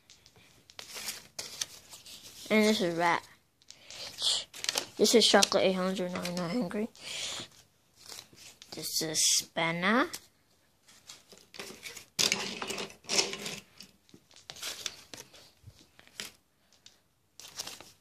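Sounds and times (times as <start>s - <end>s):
rustling and scraping: 0.0s - 5.3s, 10.8s - 18.0s.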